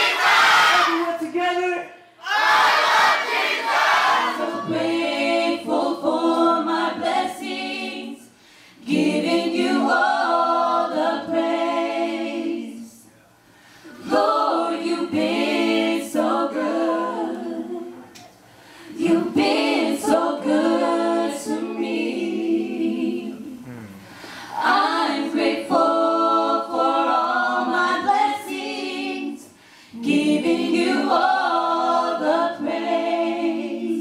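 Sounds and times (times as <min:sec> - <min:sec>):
vocal group singing a cappella: 0:02.1 - 0:34.0
singers breathing: 0:08.3 - 0:08.8, 0:13.4 - 0:14.0, 0:18.4 - 0:19.0, 0:23.6 - 0:24.6, 0:29.5 - 0:30.0.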